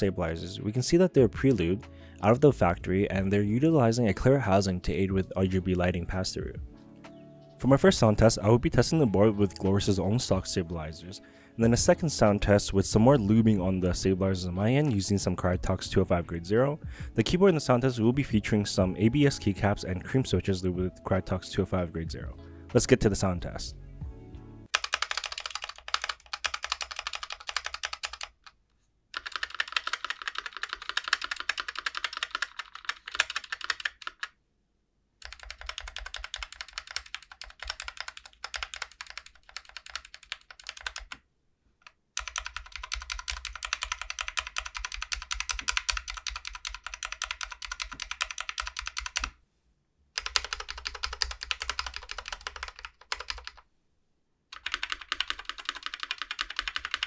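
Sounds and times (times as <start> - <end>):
keyboard keys pressed rapidly: 24.7 - 28.5, 29.2 - 34.3, 35.2 - 41.2, 42.2 - 49.4, 50.2 - 53.6, 54.5 - 57.0.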